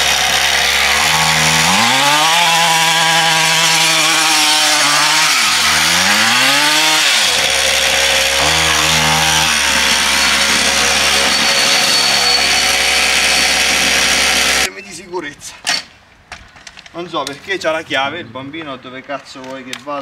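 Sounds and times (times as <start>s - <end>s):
two-stroke motorbike engine revving: 0.0s - 14.7s.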